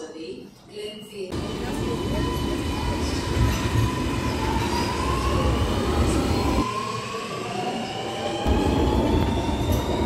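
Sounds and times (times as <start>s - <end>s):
electric train motor whine: 1.4s - 10.0s
rail rumble: 8.4s - 10.0s.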